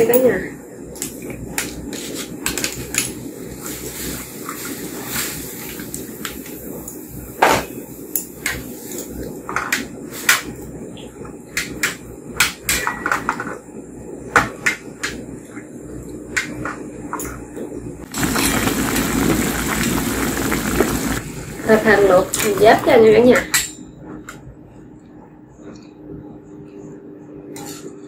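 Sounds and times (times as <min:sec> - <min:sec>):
steady low noise: 0:18.0 - 0:23.4
loud steady noise: 0:18.0 - 0:24.1.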